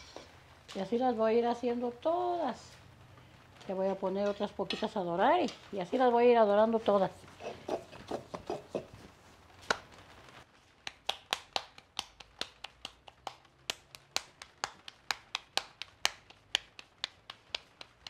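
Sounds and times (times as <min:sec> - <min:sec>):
hands patting dough: 0:07.2 - 0:18.0.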